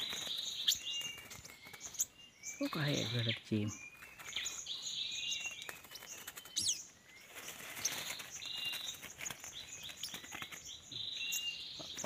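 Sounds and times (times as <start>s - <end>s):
rustling and wing flutter: 0.0s - 2.2s, 4.0s - 11.0s
small birds chirping: 0.0s - 12.0s.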